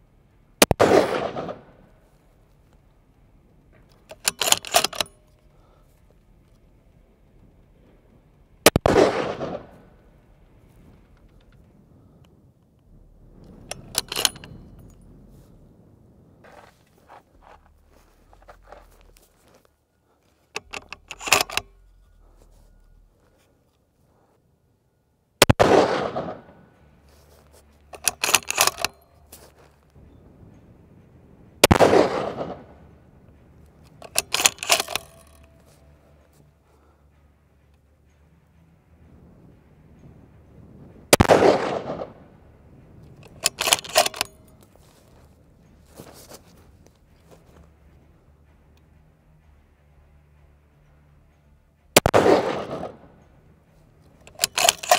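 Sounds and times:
rifle shot echoing: 0.6s - 2.1s, 8.6s - 11.1s, 25.4s - 26.8s, 31.6s - 33.0s, 41.1s - 42.3s, 52.0s - 53.2s
clicks and clatter: 3.7s - 6.6s, 13.4s - 15.1s, 20.3s - 23.5s, 27.2s - 29.6s, 33.6s - 38.6s, 43.0s - 54.9s.

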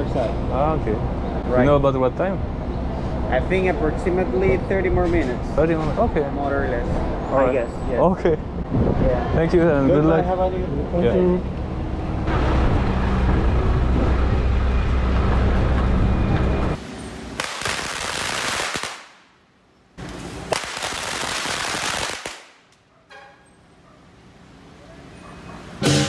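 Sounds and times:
firecrackers crackling: 16.8s - 19.4s, 20.0s - 22.9s.

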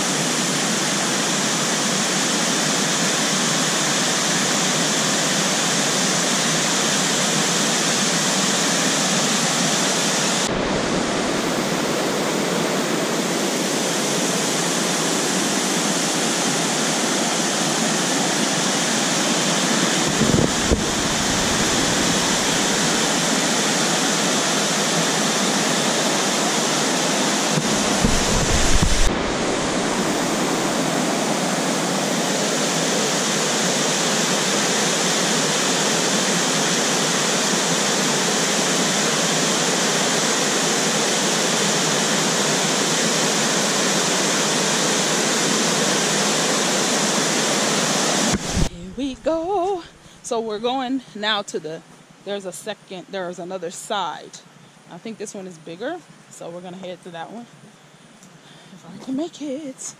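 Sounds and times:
waterfall rushing over rocks: 0.0s - 48.7s
wind buffeting microphone: 10.5s - 12.6s, 20.0s - 23.1s, 27.6s - 30.8s.

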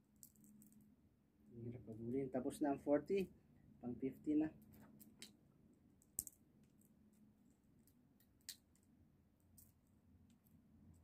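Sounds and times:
seed shells cracking: 0.0s - 0.9s, 4.6s - 11.0s.

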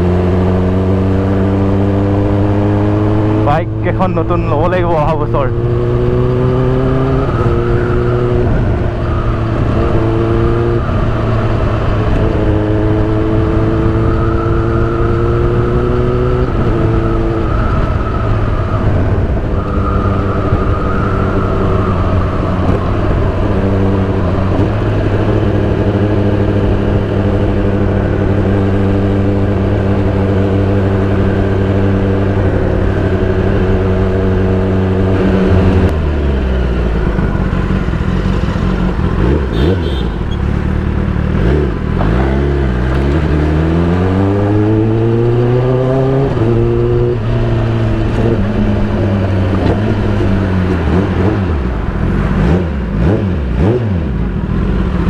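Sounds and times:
motorcycle engine: 0.0s - 55.0s
wind noise: 4.5s - 40.4s.

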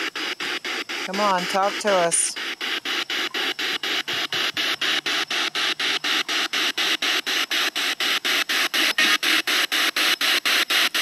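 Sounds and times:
radio static sweeping in bursts: 0.0s - 11.0s.

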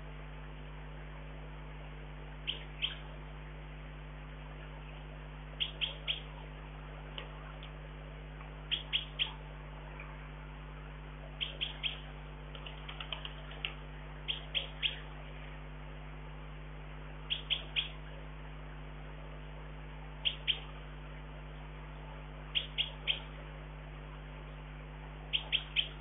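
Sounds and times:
low hum: 0.0s - 26.0s
songbird chirping: 2.4s - 3.2s, 4.6s - 6.4s, 8.6s - 10.2s, 11.2s - 15.2s, 17.2s - 18.0s, 20.2s - 20.8s, 22.5s - 23.4s, 25.2s - 26.0s.

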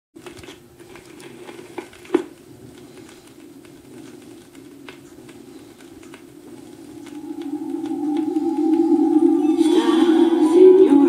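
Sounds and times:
vinyl surface noise: 0.2s - 9.9s
steady hum: 5.4s - 11.0s.

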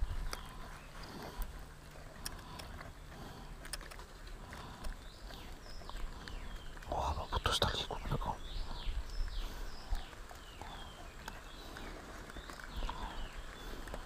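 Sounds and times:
wind rumble on microphone: 0.0s - 1.0s, 8.4s - 11.6s.

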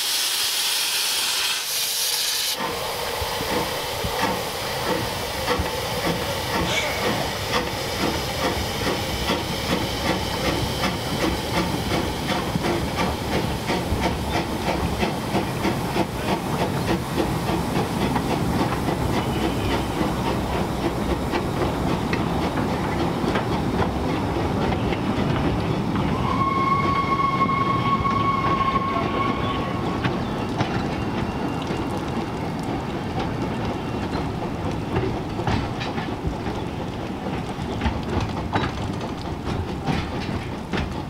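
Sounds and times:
steam hissing: 0.0s - 22.8s
coaches clattering over rail joints: 3.5s - 26.2s, 28.1s - 41.0s
steam whistle: 26.1s - 30.0s.

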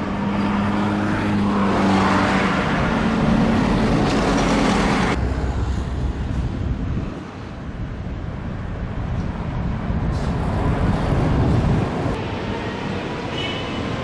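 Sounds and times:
vehicle rumble: 0.0s - 13.8s.

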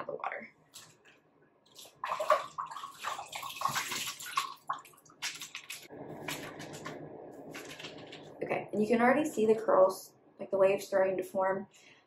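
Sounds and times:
wet hair squishing: 0.7s - 8.4s
hands splashing water in a bowl: 1.7s - 8.2s.

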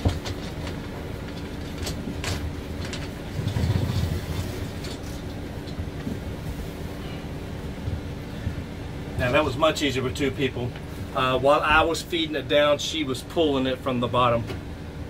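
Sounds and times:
shower curtain rustling and crinkling: 0.0s - 7.0s
low rumble of handling: 0.0s - 15.0s
steady hum: 0.0s - 15.0s.

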